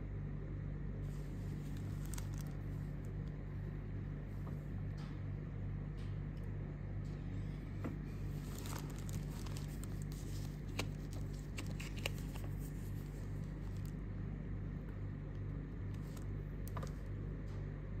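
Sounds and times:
low hum: 0:00.0 - 0:18.0
paper crinkling and rustling: 0:01.1 - 0:03.3, 0:08.1 - 0:14.2, 0:15.8 - 0:17.1.

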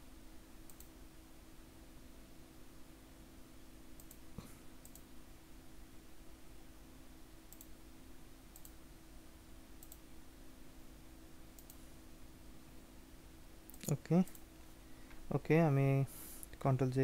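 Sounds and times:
low room hum: 0:00.0 - 0:17.0
computer mouse clicks: 0:00.6 - 0:00.9, 0:04.0 - 0:04.2, 0:04.8 - 0:05.1, 0:07.5 - 0:07.8, 0:08.5 - 0:08.8, 0:09.8 - 0:10.0, 0:11.5 - 0:11.8, 0:13.7 - 0:14.4.

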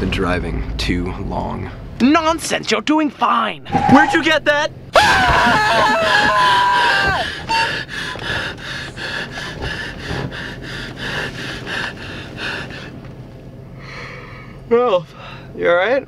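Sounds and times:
person screaming: 0:03.6 - 0:07.7
quick rhythmic breathing: 0:07.2 - 0:13.2.

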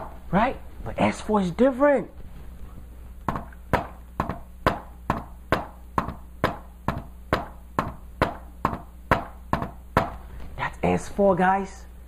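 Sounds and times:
hand tapping on a whiteboard: 0:03.2 - 0:10.2.

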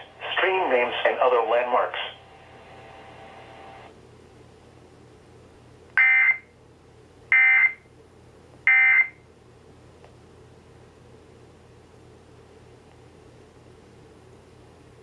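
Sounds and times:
faint radio hiss: 0:00.0 - 0:03.9.

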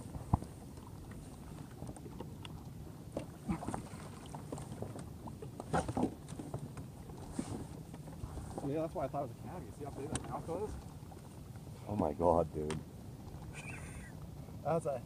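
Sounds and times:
splashes and knocks: 0:00.0 - 0:08.7
water around a kayak: 0:00.0 - 0:15.0
wind: 0:00.0 - 0:15.0.

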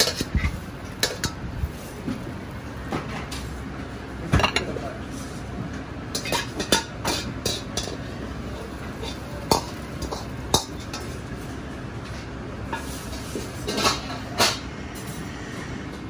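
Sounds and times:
metal ladle scraping a wok: 0:00.0 - 0:01.4
low kitchen hum: 0:00.0 - 0:16.0.

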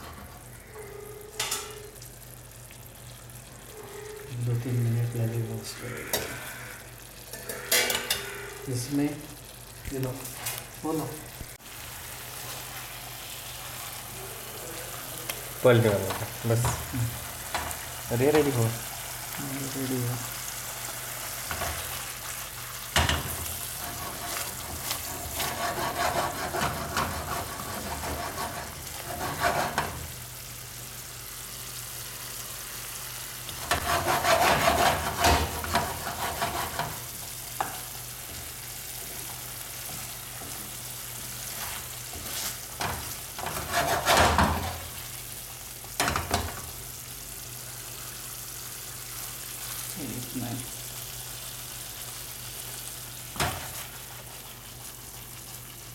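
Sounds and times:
fish sizzling in a pan: 0:00.0 - 0:55.9
wooden spatula stirring and scraping: 0:23.2 - 0:30.2, 0:33.6 - 0:45.0.

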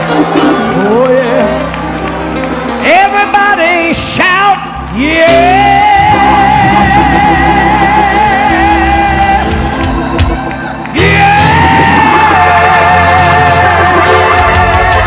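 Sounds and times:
stepping bass line: 0:05.1 - 0:15.0.

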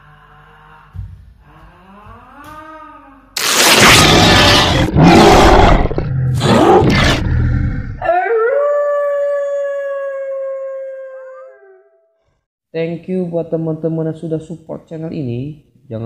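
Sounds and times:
rough beast growl: 0:03.4 - 0:08.0
wolf howl: 0:08.0 - 0:12.1.

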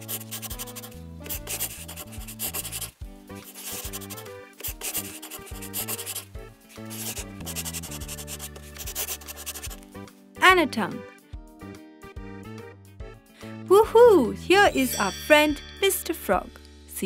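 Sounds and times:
marker rubbing on paper: 0:00.0 - 0:09.8
background music: 0:00.0 - 0:17.0.

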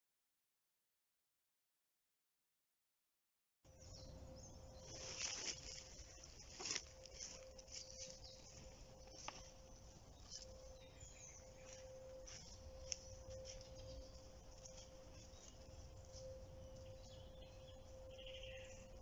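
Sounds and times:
thin steady hum: 0:03.7 - 0:19.0
leaf litter crackling: 0:04.8 - 0:10.8.

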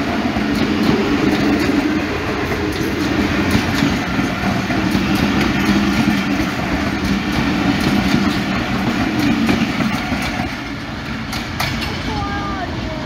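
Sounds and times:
train wheels rumbling on rails: 0:00.0 - 0:13.0
clicks over rail joints: 0:11.3 - 0:12.1.

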